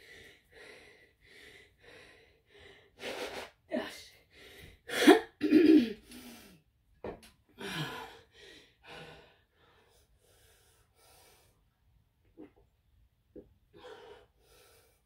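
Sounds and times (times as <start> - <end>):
person breathing hard and gasping: 0.0 - 3.6, 4.2 - 6.6, 7.6 - 11.6, 13.7 - 15.0.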